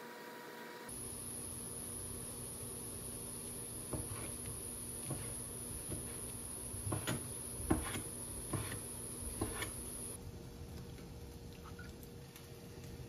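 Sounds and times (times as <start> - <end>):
knife chopping on wooden board: 3.9 - 4.4, 5.0 - 6.2, 6.8 - 9.8.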